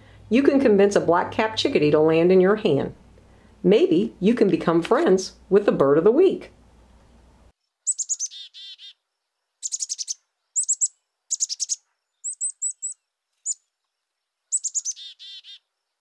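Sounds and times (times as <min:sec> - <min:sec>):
rapid high bird notes: 0:07.8 - 0:09.0, 0:09.6 - 0:13.6, 0:14.5 - 0:15.6
chickadee call: 0:09.6 - 0:13.0.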